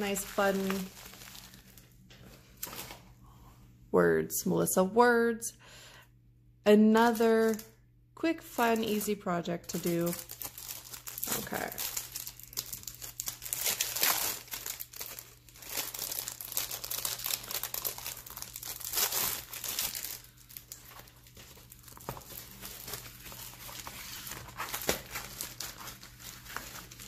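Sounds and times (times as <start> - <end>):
plastic packaging crinkling: 0.0 - 2.0, 7.0 - 7.7, 8.6 - 27.0.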